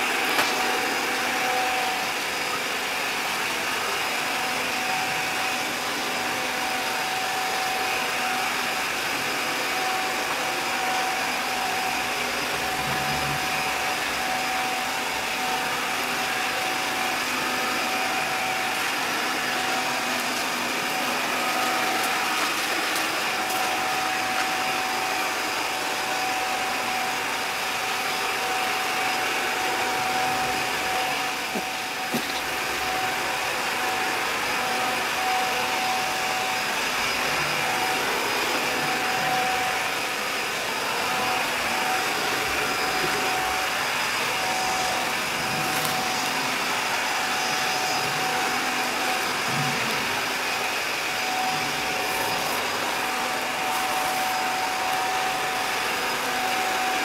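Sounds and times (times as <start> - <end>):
robot vacuum whirring: 0.0 - 57.0
thin whine: 0.0 - 57.0.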